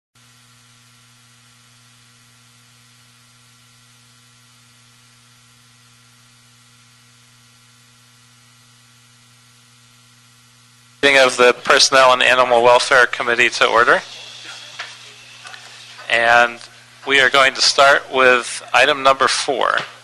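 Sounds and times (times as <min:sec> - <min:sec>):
faint electrical hum: 0:00.2 - 0:20.0
hiss: 0:14.0 - 0:16.6.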